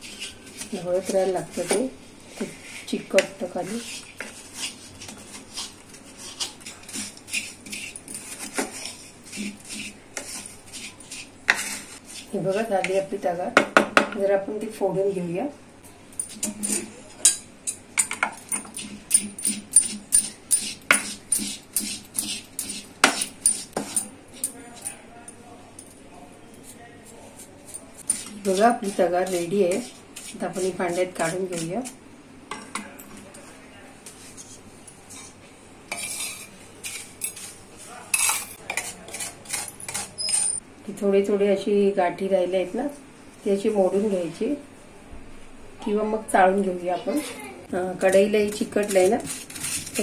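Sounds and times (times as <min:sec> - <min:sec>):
spatula scraping a pan: 0:00.0 - 0:13.0, 0:18.5 - 0:25.0, 0:26.6 - 0:32.0, 0:34.1 - 0:40.6, 0:48.0 - 0:50.0
utensils clinking on pan and bowl: 0:16.2 - 0:25.0, 0:38.1 - 0:40.6
metal pestle pounding sugar: 0:18.0 - 0:24.1, 0:48.1 - 0:50.0.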